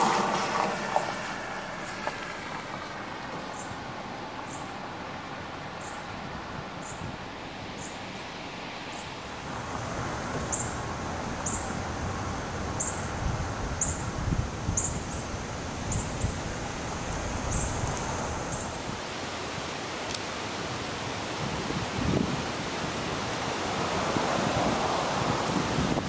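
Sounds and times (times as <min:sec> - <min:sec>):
gusty wind through trees: 0:00.0 - 0:26.0
low wind rumbles: 0:00.0 - 0:26.0
wind buffeting microphone: 0:09.4 - 0:19.7, 0:20.5 - 0:26.0.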